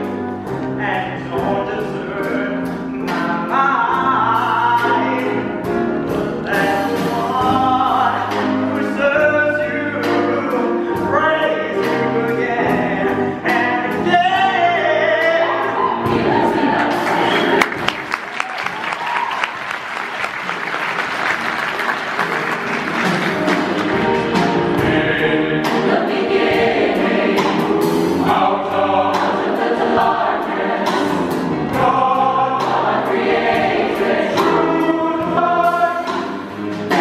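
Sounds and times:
mixed choir singing: 14.7 - 17.9, 23.2 - 37.0.

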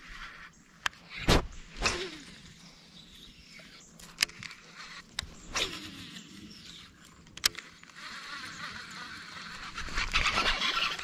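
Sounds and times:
fishing reel clicks: 3.3 - 11.0
reel winding rattle: 3.4 - 11.0.

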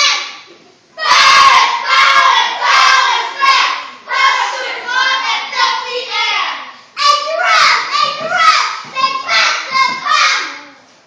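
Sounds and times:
children chanting: 1.0 - 10.7.

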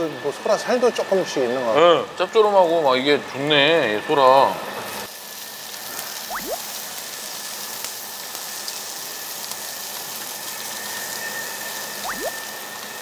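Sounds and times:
meat sizzling on grill: 0.0 - 13.0
rising whistle-like sweep: 10.6 - 13.0.

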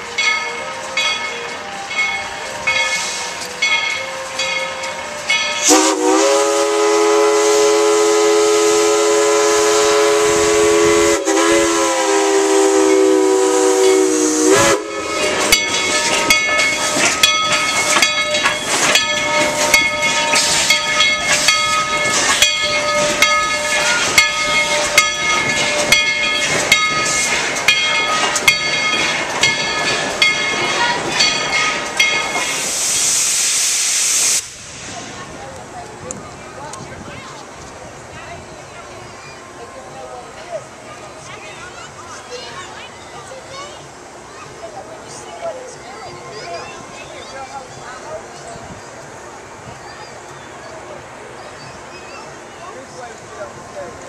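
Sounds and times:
locomotive bell ringing: 0.0 - 6.2, 12.8 - 32.7
steam locomotive chime whistle: 0.0 - 34.5
steam hissing: 0.0 - 39.2.

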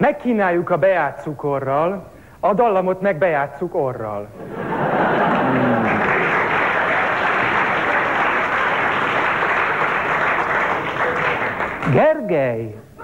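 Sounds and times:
audience applauding: 4.7 - 12.1.

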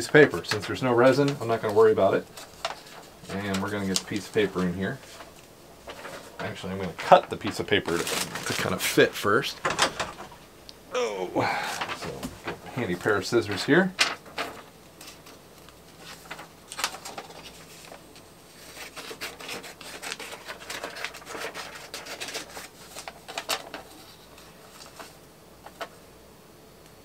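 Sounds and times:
paper rustling: 0.0 - 9.8, 11.4 - 26.0
scissors snipping paper: 18.8 - 22.7.

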